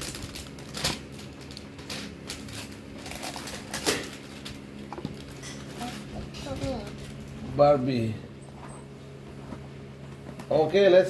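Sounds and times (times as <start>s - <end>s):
plastic packaging crinkling: 0.0s - 7.4s.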